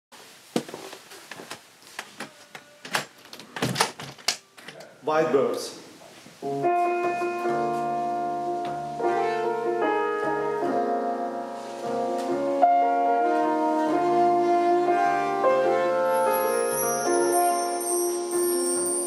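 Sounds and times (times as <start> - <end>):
jazz ensemble with piano chords: 6.0 - 19.0.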